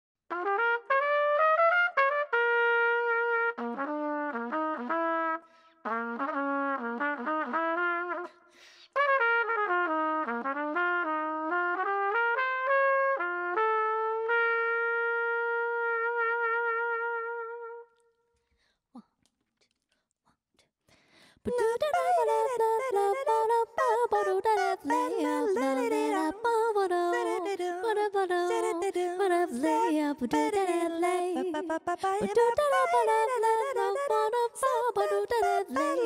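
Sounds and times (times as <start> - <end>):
solo trumpet playing jazz: 0.3 - 8.4, 9.0 - 18.0, 21.8 - 29.0, 32.4 - 36.0.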